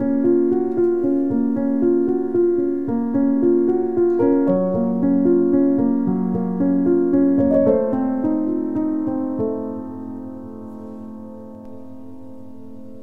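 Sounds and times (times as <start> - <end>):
slow keyboard melody: 0.0 - 13.0.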